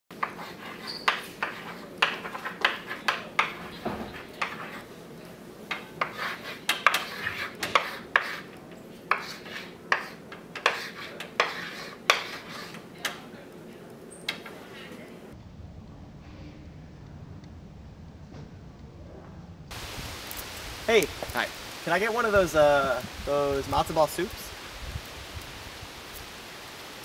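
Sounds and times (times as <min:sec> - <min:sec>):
chalk writing on a chalkboard: 0:00.1 - 0:04.9, 0:05.7 - 0:12.9.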